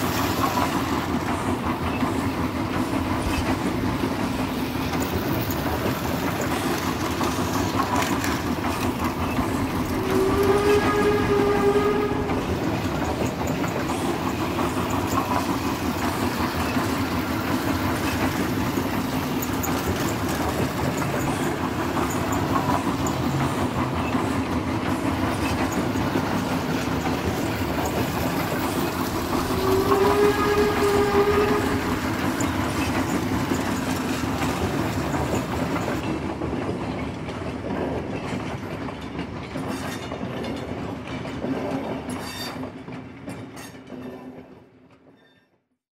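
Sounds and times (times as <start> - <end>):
steam engine chuffing: 0.0 - 36.3
steam whistle blowing: 9.9 - 12.5, 29.2 - 32.2.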